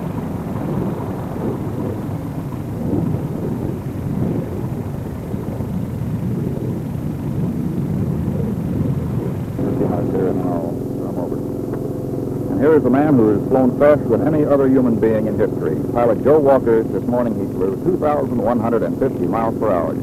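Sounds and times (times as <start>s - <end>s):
aircraft low rumbling roar: 0.0s - 20.0s.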